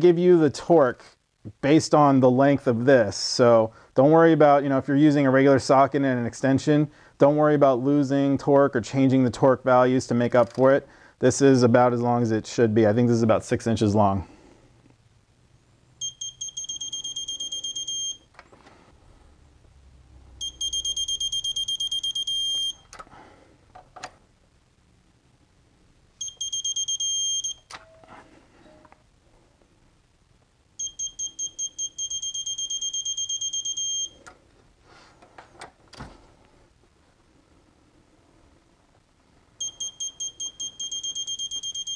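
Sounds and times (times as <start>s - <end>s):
torque wrench beeping: 30.8s - 34.2s, 39.6s - 41.9s.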